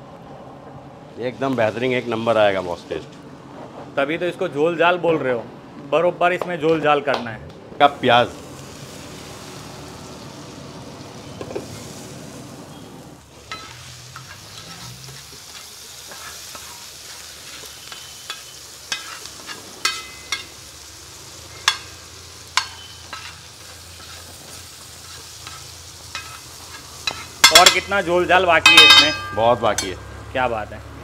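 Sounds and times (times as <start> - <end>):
onions sizzling in a pan: 7.8 - 30.4
metal spatula scraping a pan: 13.5 - 20.5, 22.6 - 27.9.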